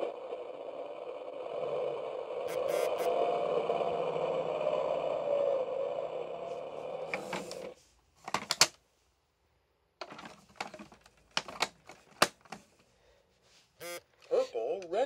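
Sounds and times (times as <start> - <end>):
steady electronic toy sound: 2.4 - 3.2, 13.8 - 14.1
plastic toy truck clacking: 8.3 - 8.8, 10.0 - 12.7.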